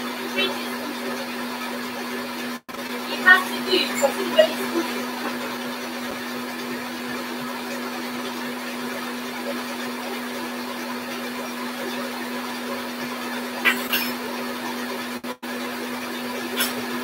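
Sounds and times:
stand mixer whirring: 0:00.0 - 0:17.0.

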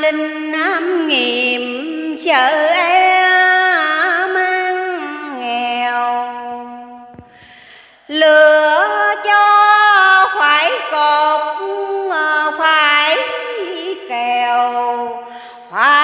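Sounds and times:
woman chanting verse: 0:08.2 - 0:16.0.

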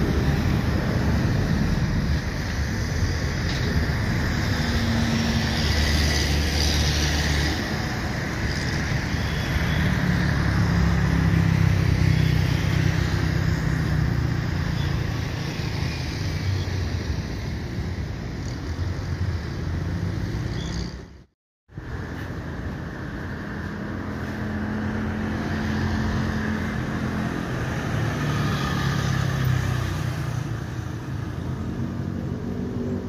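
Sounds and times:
jet engines roaring at takeoff: 0:00.0 - 0:12.0.

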